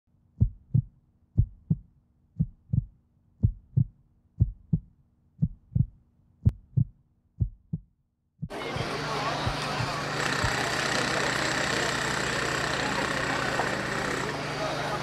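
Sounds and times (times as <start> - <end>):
heartbeat thumps: 0.4 - 10.6.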